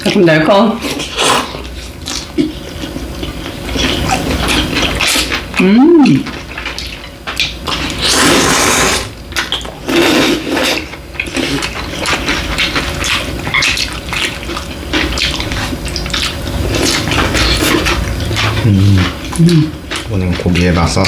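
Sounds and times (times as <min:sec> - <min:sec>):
smacking and chewing: 0:00.8 - 0:21.0
noodles being slurped: 0:07.4 - 0:21.0.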